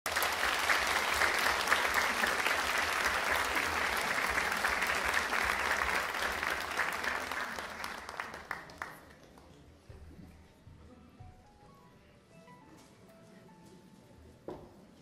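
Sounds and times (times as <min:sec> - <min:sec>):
audience applauding: 0:00.0 - 0:09.6.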